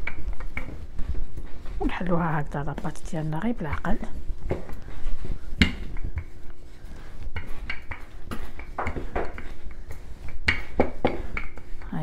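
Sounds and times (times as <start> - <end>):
rolling pin knocks and clatters: 7.2 - 11.9.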